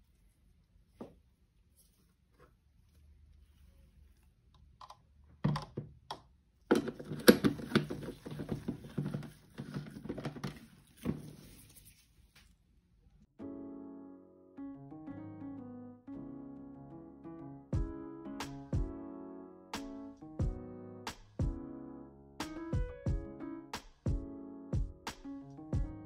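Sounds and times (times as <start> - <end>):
plastic knocking on wooden countertop: 6.7 - 11.3.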